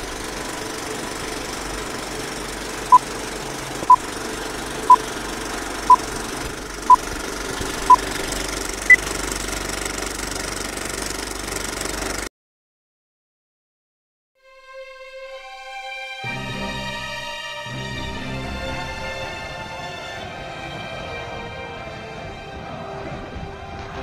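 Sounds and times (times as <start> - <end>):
film projector clatter: 0.0 - 12.3.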